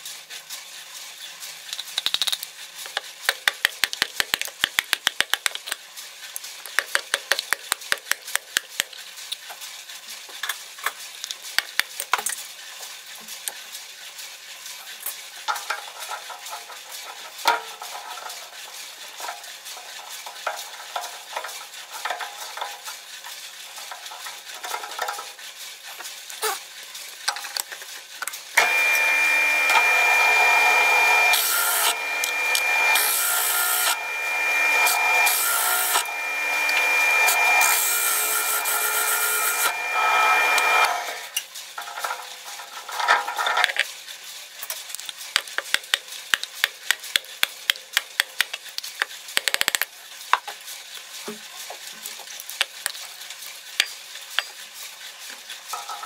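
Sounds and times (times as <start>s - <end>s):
drill press high whine: 28.6s - 41.4s
hole saw clicking and scraping: 30.7s - 43.9s.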